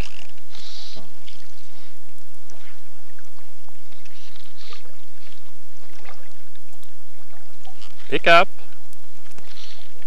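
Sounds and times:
tape hiss and hum: 0.0s - 10.0s.

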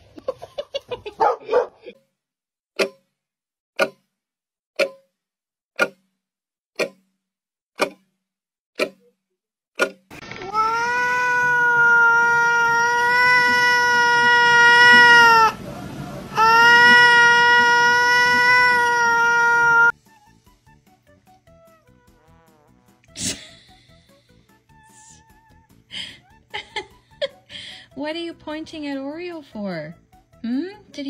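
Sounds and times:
cat crying loudly: 10.4s - 15.6s, 16.3s - 19.9s.

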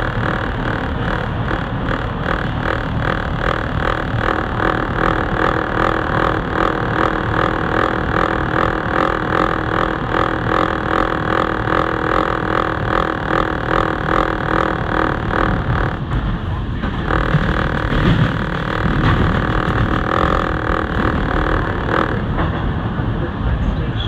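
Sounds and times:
subway train wheels on rails: 22.2s - 24.0s.

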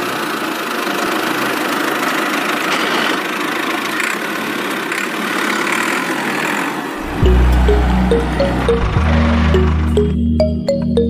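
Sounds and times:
truck engine idling: 6.9s - 11.0s.

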